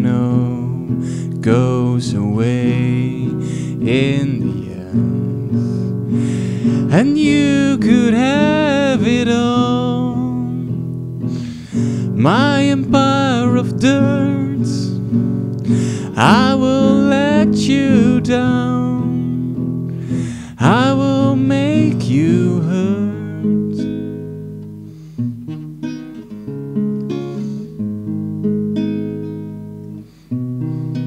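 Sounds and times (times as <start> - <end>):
man singing: 0.0 - 10.8, 11.4 - 24.0
classical guitar strummed: 0.0 - 31.0.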